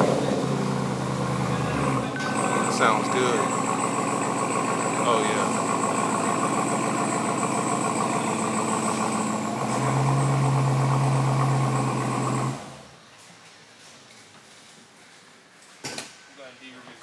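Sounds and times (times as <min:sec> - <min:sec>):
truck engine idling: 0:00.0 - 0:13.0.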